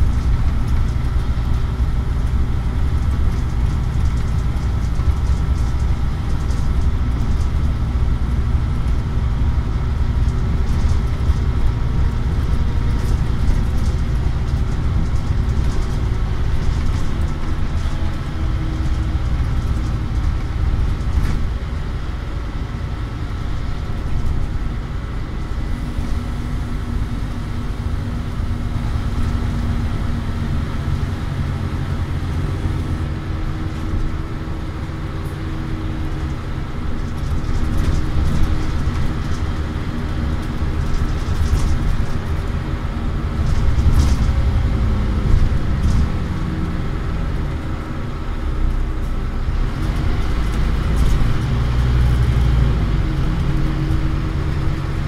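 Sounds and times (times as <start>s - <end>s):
rattles and clicks: 0.0s - 21.7s, 35.2s - 46.3s, 49.0s - 54.9s
bus engine running under load: 0.0s - 55.0s.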